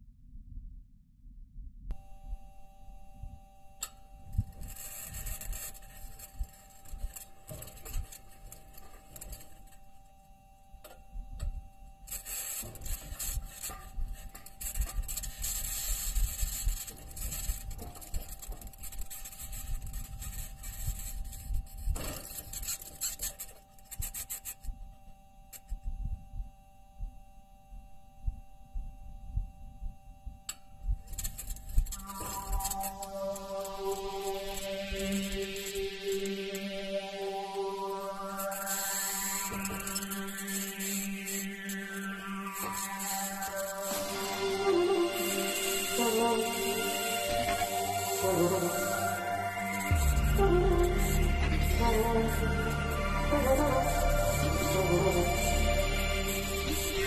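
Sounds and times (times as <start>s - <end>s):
steady high tones: 30.8s - 57.0s
low rumble: 46.0s - 57.0s.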